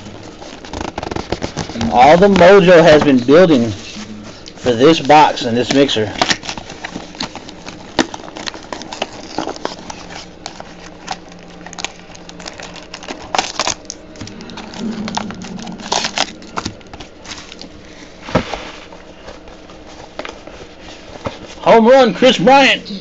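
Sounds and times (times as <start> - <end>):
plastic wrappers crinkling: 0.0 - 18.2.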